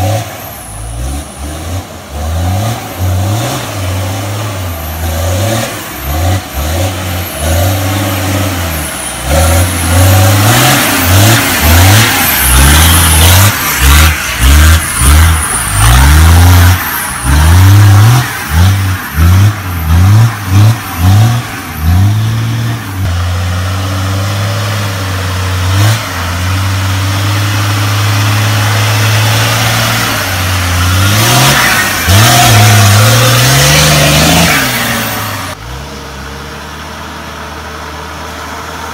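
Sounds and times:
turbocharged engine revving: 0:00.0 - 0:38.9.

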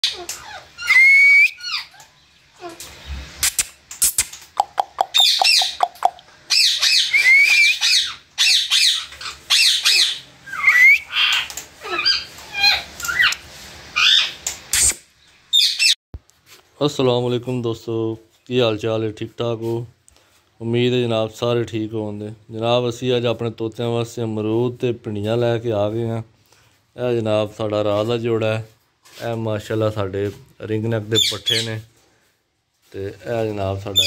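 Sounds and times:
parakeets squawking: 0:04.6 - 0:14.9, 0:15.5 - 0:16.0, 0:31.1 - 0:31.8.

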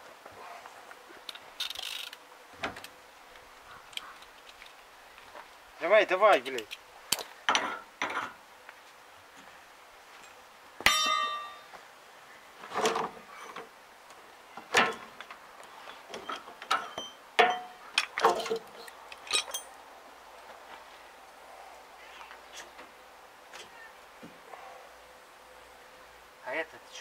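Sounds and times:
sharp metal clank: 0:10.9 - 0:11.7, 0:16.8 - 0:18.6
metallic clinks of hand tools: 0:19.2 - 0:19.7.

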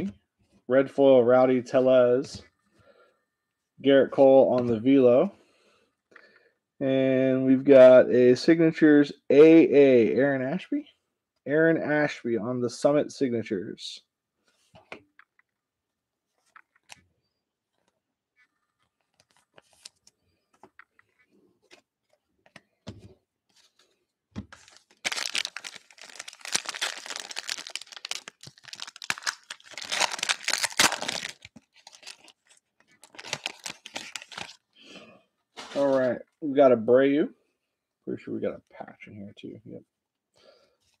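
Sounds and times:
foil pack tearing and crinkling: 0:24.6 - 0:34.6.

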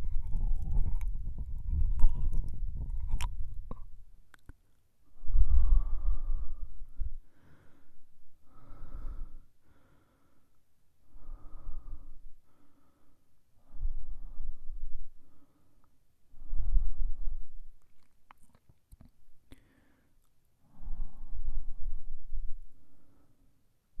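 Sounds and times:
wet tongue and mouth clicks: 0:00.0 - 0:04.6, 0:17.8 - 0:19.6
man breathing heavily: 0:05.1 - 0:17.6.

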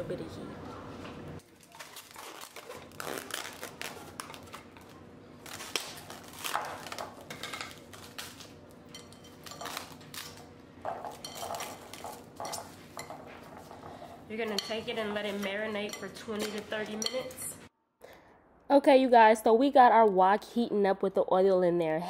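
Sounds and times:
plastic wrap rustling: 0:01.4 - 0:15.7.

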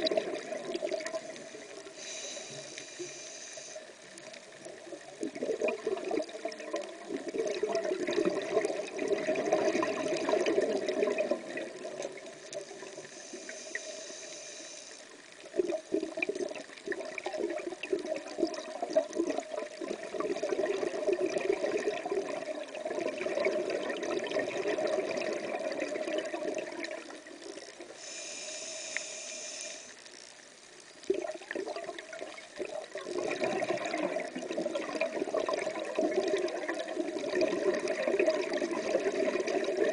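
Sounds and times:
underwater exhale bubbling: 0:00.0 - 0:29.9, 0:31.1 - 0:39.9
regulator inhalation hiss: 0:01.1 - 0:04.4, 0:12.4 - 0:15.2, 0:27.9 - 0:30.0.

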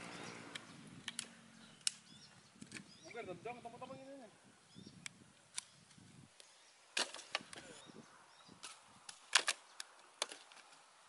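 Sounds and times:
firewood cracking: 0:06.9 - 0:07.8, 0:08.6 - 0:10.8.

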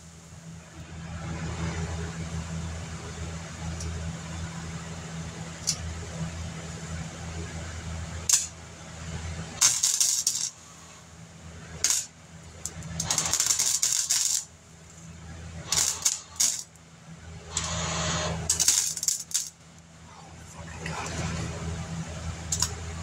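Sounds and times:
welder crackling: 0:08.2 - 0:08.6, 0:09.4 - 0:16.8, 0:17.4 - 0:19.9.

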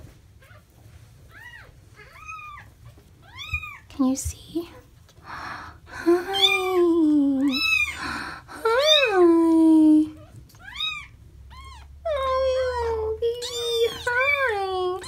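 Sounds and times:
kitten mewing: 0:06.2 - 0:08.0.

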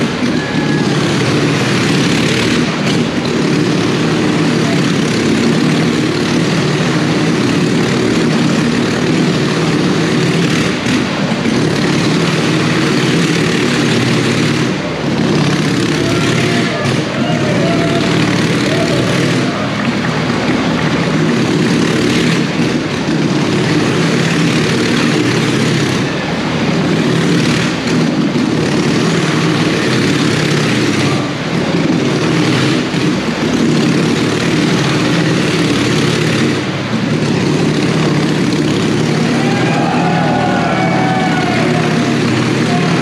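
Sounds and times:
motorcycle engine running hard: 0:00.0 - 0:43.0.

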